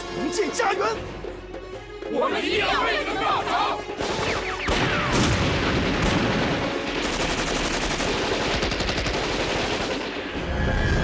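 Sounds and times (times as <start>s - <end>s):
automatic gunfire: 5.9s - 10.2s.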